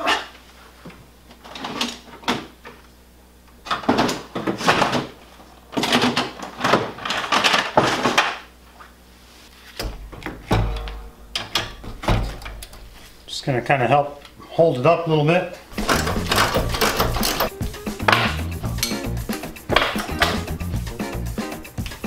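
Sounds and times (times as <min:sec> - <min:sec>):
items clattering and scraping: 0:00.0 - 0:02.8, 0:03.6 - 0:08.8, 0:15.7 - 0:19.1.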